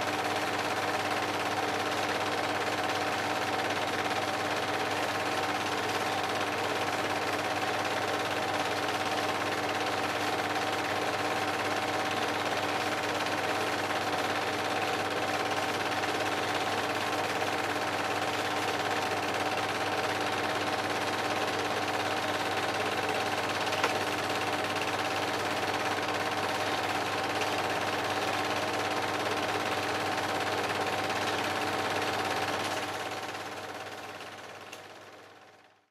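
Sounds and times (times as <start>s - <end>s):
film projector clattering: 0.0s - 35.8s.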